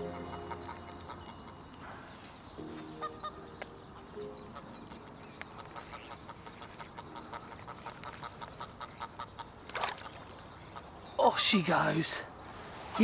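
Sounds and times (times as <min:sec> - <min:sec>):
geese honking: 0:00.0 - 0:01.6
small birds chirping faintly: 0:00.0 - 0:13.0.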